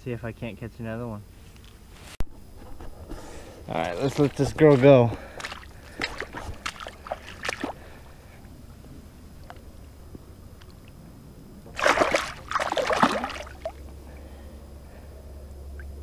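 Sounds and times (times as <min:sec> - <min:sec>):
fish splashing in shallow water: 0:04.0 - 0:08.7, 0:11.7 - 0:14.4.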